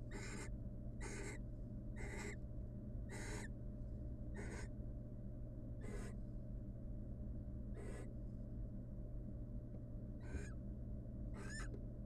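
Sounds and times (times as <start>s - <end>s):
steady low hum: 0.0s - 12.0s
owl rasping hiss calls: 0.1s - 1.4s, 2.0s - 2.4s, 3.1s - 3.5s, 4.4s - 4.7s, 5.8s - 6.2s, 7.8s - 8.1s, 10.2s - 10.6s, 11.4s - 11.7s.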